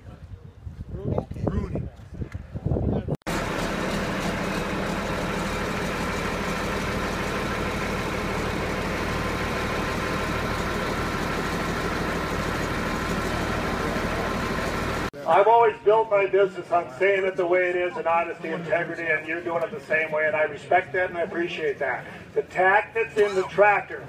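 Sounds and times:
tractor diesel engine idling: 3.3s - 15.6s.

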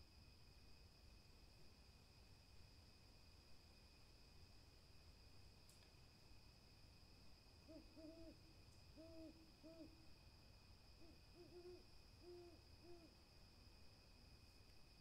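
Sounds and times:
owls hooting soft low coos: 7.6s - 10.2s, 11.0s - 13.2s.

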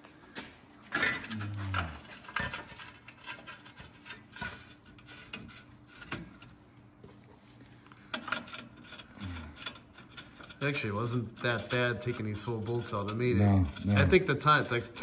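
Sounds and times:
metal bolts clinking and scraping: 0.8s - 6.5s.

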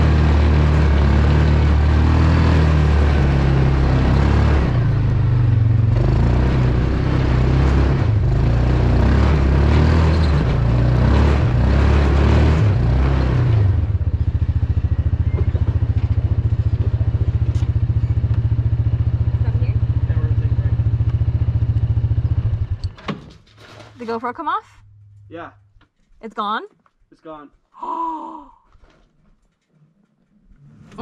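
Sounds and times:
engine working up a trail: 0.0s - 23.3s.

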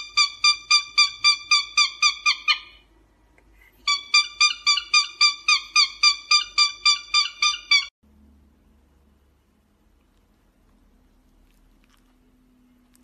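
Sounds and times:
cockatiel chirping: 0.0s - 2.9s, 3.9s - 7.9s.

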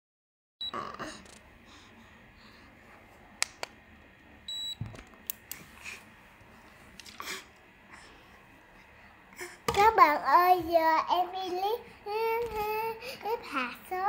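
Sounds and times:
electronic beep: 4.5s - 4.8s.

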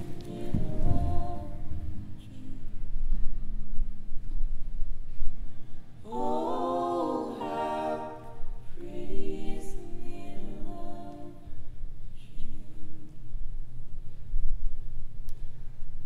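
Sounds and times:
voices singing a cappella: 0.0s - 3.0s, 6.0s - 13.3s.

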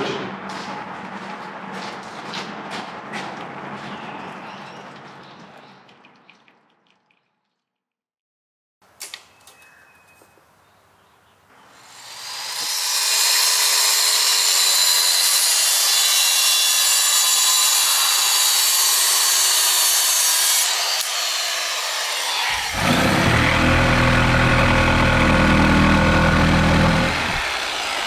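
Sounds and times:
circular saw cutting board: 11.8s - 28.0s.

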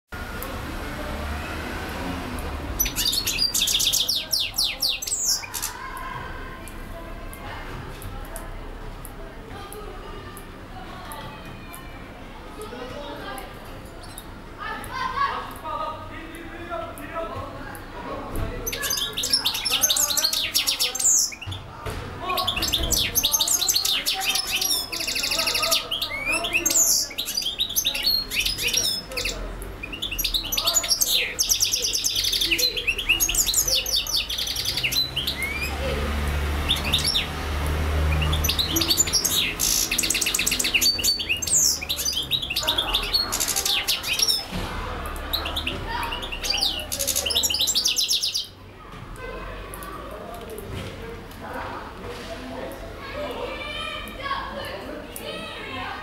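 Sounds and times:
goldfinch singing: 2.8s - 5.8s, 18.6s - 21.6s, 22.3s - 44.5s, 45.2s - 48.6s.

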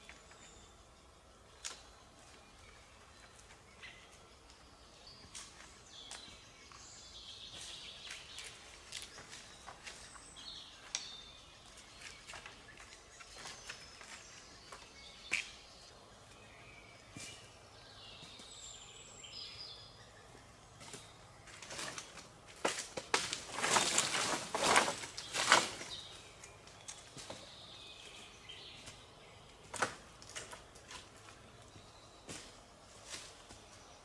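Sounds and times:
birds singing: 0.0s - 22.5s, 23.5s - 34.0s
branches rustling and cracking: 1.5s - 4.6s, 5.2s - 15.5s, 20.8s - 33.8s.

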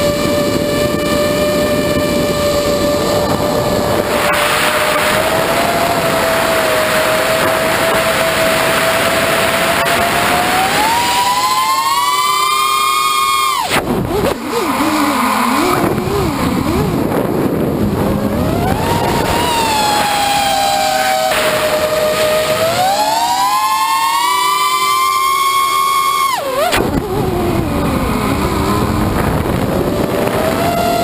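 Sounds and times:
drone motors whining: 0.0s - 31.0s
wind rushing: 0.2s - 11.4s, 13.7s - 23.0s, 26.7s - 31.0s.

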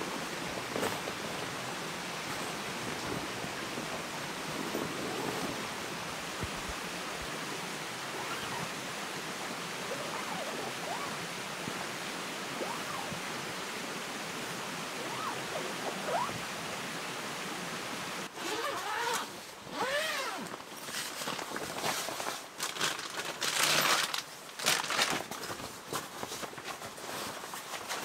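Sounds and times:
plastic and fabric rustling: 0.0s - 6.8s, 18.4s - 28.0s
mountain stream rushing: 0.0s - 26.1s.

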